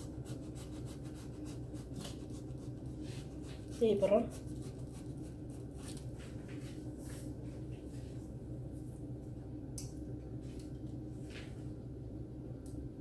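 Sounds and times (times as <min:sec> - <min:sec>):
pastry rustling in baking tray: 0:00.2 - 0:08.2
low hum: 0:04.3 - 0:13.0.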